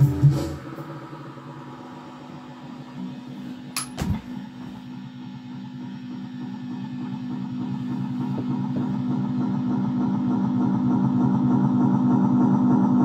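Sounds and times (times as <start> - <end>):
guitar amp electrical hum: 0.0 - 12.5
knocks near microphone: 3.8 - 4.8.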